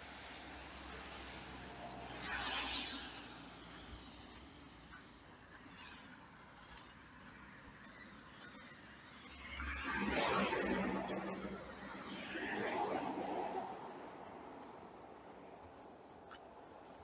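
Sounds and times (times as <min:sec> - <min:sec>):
car tyres hissing on wet road: 0:00.0 - 0:04.9
thin high steady whine: 0:04.8 - 0:14.9.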